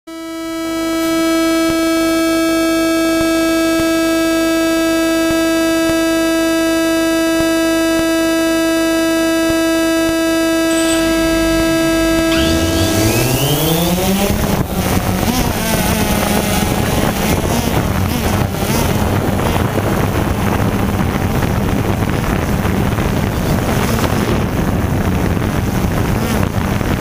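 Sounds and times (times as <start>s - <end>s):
drone motors whining: 9.8s - 19.6s.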